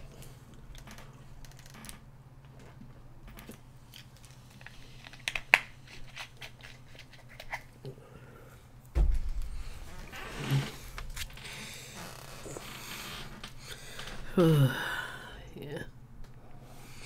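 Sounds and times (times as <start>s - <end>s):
steady low hum: 0.0s - 17.0s
dull thump: 8.9s - 10.4s.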